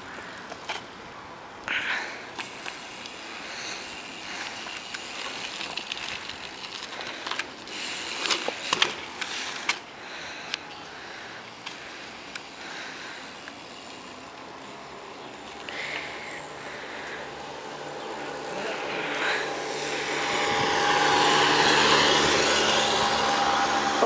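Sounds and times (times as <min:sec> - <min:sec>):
bike tyres rolling on asphalt: 0:00.0 - 0:24.0
bike clicks and knocks: 0:00.4 - 0:01.0, 0:04.0 - 0:12.6
steady hiss: 0:02.2 - 0:06.8.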